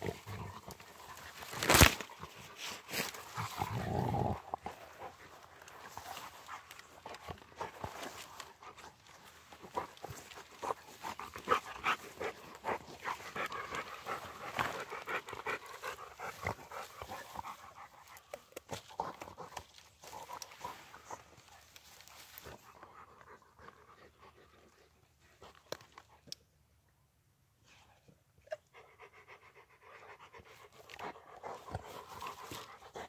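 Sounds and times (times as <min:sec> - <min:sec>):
branch cracking: 0:00.7 - 0:03.4
dogs panting: 0:02.2 - 0:26.1, 0:28.7 - 0:33.0
rustling grass: 0:19.4 - 0:22.8.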